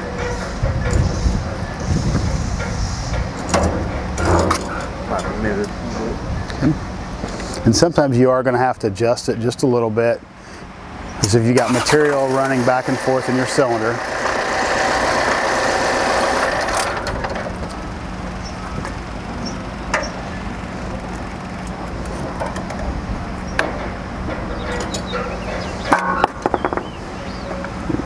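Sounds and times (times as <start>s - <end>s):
diesel engine idling: 10.2s - 26.0s
hydraulic whine: 11.6s - 23.6s.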